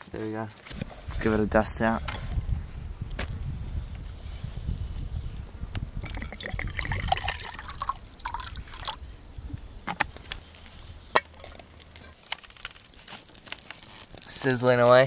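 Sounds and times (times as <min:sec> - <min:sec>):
wind rumble on microphone: 0:00.7 - 0:11.1
water trickling in metal cup: 0:06.0 - 0:09.2.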